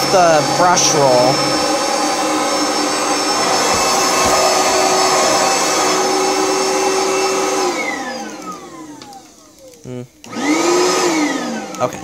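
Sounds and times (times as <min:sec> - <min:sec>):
vacuum cleaner running: 0:00.0 - 0:12.0
soft bumps: 0:01.5 - 0:05.8.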